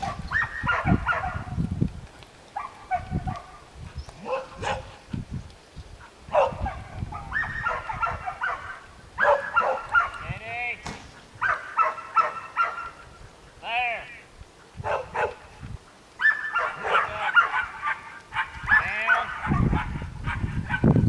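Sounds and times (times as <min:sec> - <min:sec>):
dog barking: 0:00.0 - 0:01.6, 0:02.6 - 0:03.6, 0:04.2 - 0:05.0, 0:06.3 - 0:10.2, 0:11.4 - 0:13.0, 0:14.8 - 0:15.5, 0:16.2 - 0:21.0.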